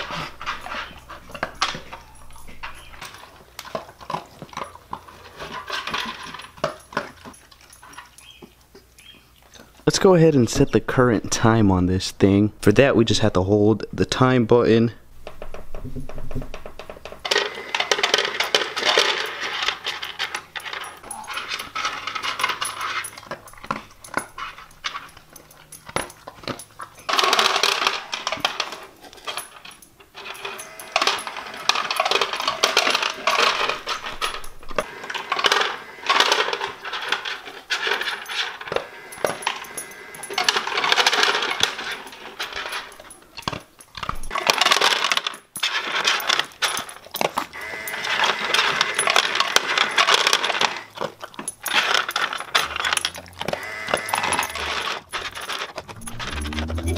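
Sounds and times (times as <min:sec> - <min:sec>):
kibble clattering on plastic: 0:00.0 - 0:11.6, 0:15.2 - 0:56.9
dogs crunching kibble: 0:00.0 - 0:14.3, 0:15.2 - 0:56.9.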